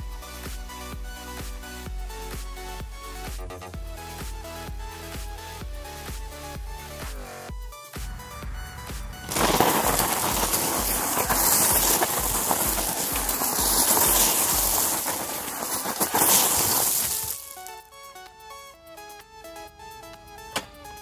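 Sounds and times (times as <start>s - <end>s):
background music with a beat: 0.0s - 11.9s, 16.3s - 21.0s
tyre spinning on gravel: 9.2s - 17.9s.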